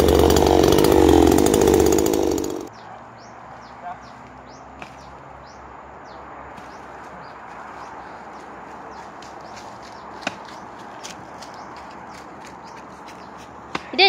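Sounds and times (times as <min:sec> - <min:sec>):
bird chirping: 0:02.7 - 0:10.8.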